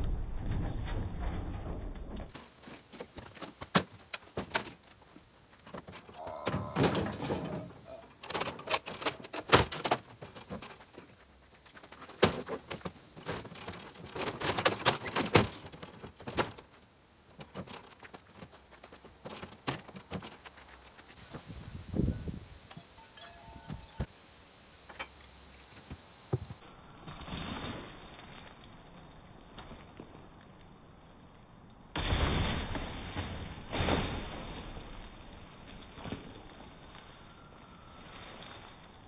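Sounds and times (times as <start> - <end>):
clattering plastic and metal: 8.2 - 10.9, 12.0 - 16.7.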